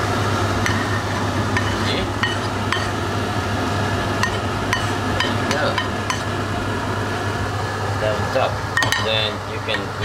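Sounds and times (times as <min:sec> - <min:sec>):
steady low hum: 0:00.0 - 0:10.0
spoon scraping and clinking on pan: 0:01.6 - 0:03.0.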